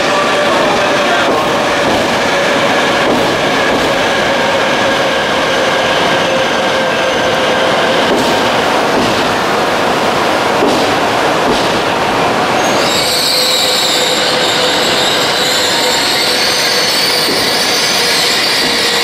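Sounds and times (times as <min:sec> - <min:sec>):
train rolling rumble: 0:00.0 - 0:19.0
high brake squeal: 0:12.6 - 0:19.0.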